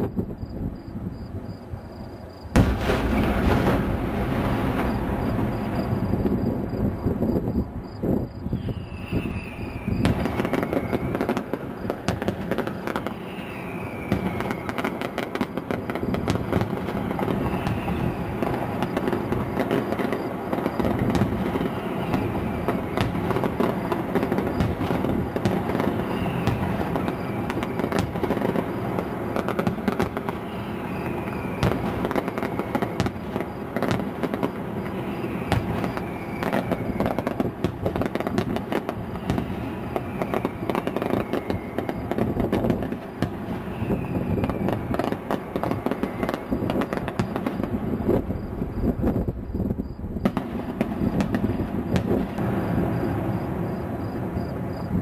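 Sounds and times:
distant fireworks bangs and crackles: 0.0 - 55.0.

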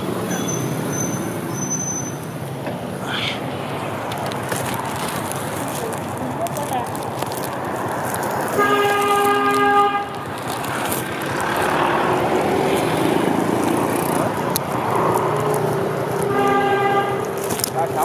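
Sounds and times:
motorbike and traffic noise: 0.0 - 18.0
vehicle horn honking: 8.5 - 10.2, 16.2 - 17.5.

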